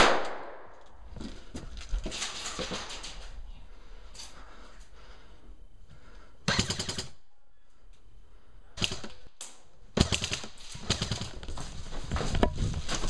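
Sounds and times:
airsoft guns firing full-auto: 6.5s - 7.2s, 8.8s - 9.3s, 9.9s - 11.4s.

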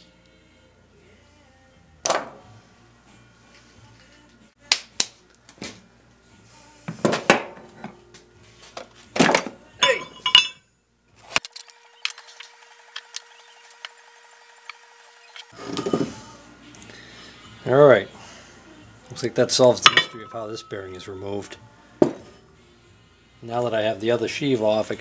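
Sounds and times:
metal parts clinking and knocking: 9.3s - 10.6s.

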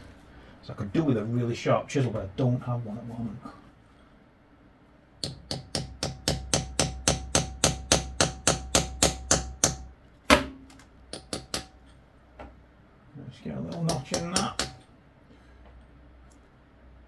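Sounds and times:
hammer tapping steel tool: 5.2s - 9.9s, 11.1s - 11.8s, 13.7s - 14.9s.

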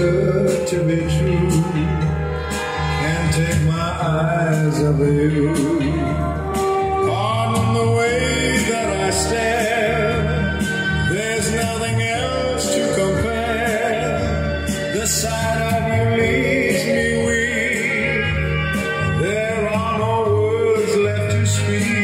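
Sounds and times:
pop song from vinyl record: 0.0s - 22.0s.

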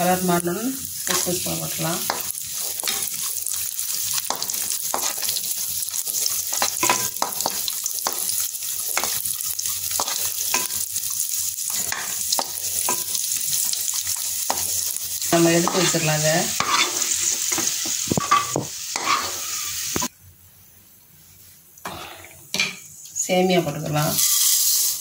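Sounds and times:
nuts sizzling in hot fat: 0.0s - 20.1s, 22.9s - 25.0s
spatula scraping and knocking pan: 2.0s - 3.3s, 4.1s - 5.5s, 6.1s - 9.2s, 10.0s - 10.9s, 11.7s - 13.2s, 15.6s - 16.0s, 16.6s - 20.1s.

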